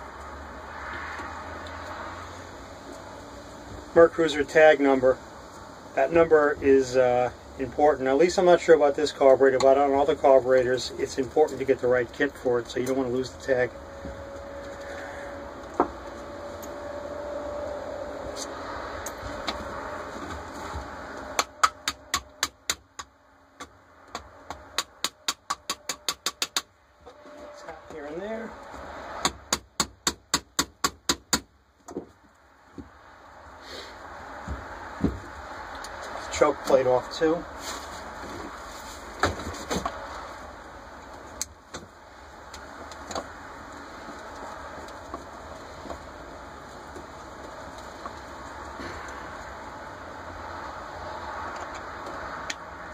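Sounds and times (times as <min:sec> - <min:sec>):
steady background hiss: 0:00.0 - 0:52.9
hammer tapping on metal: 0:24.5 - 0:26.7.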